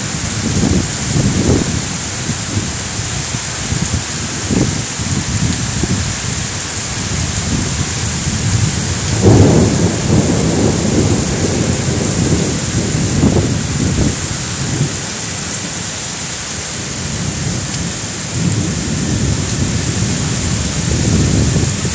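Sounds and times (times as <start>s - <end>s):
gusting wind: 0.0s - 21.9s
heavy rain hiss: 0.0s - 21.9s
low rumble: 8.3s - 15.0s.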